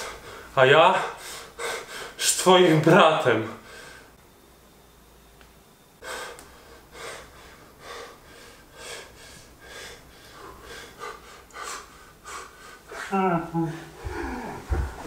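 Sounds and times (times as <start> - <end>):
young man sobbing: 12.9 - 15.0.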